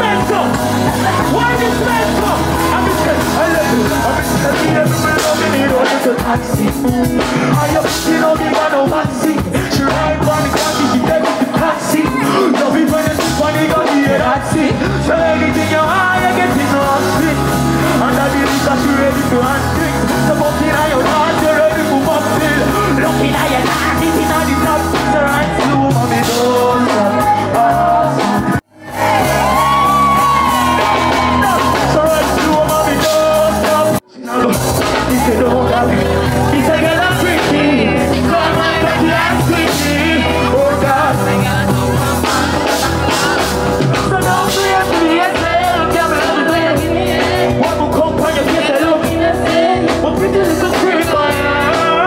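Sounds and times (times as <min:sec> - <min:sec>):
crowd yelling: 0:00.0 - 0:06.2, 0:22.2 - 0:47.9
person singing over backing track: 0:00.0 - 0:52.0.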